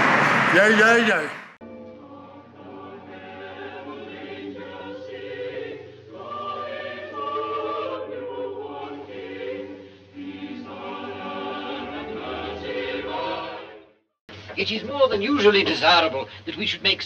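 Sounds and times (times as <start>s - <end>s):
choir singing held notes: 0.5s - 13.9s.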